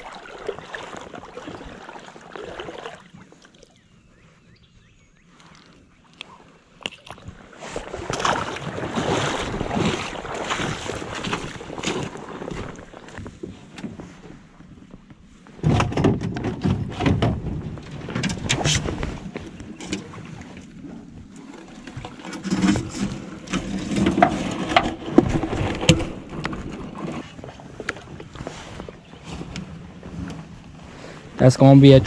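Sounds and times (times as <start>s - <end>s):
fishing gear clunking in metal boat: 15.6s - 20.3s, 21.4s - 28.2s.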